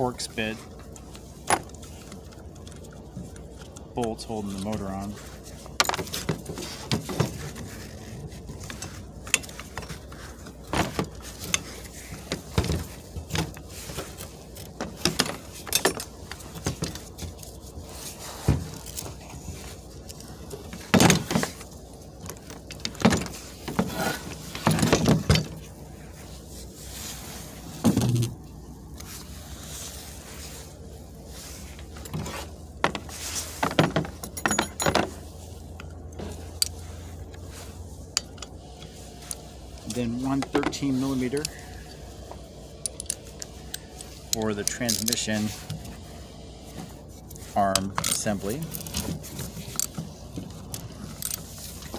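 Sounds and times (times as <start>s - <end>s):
metallic clinks and taps: 34.0s - 35.2s.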